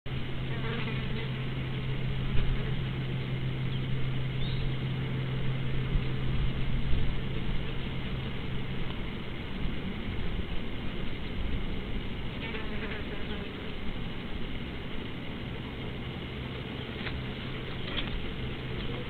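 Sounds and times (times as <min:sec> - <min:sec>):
low electrical hum: 0:00.1 - 0:19.0
uneven low rumble: 0:00.1 - 0:19.0.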